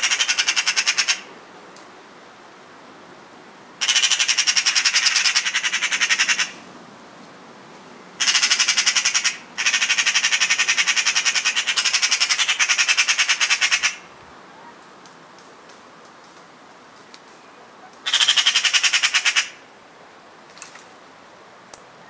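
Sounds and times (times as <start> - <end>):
magpies rattling chatter: 0.0 - 1.3, 3.8 - 6.6, 8.2 - 14.1, 18.0 - 19.6.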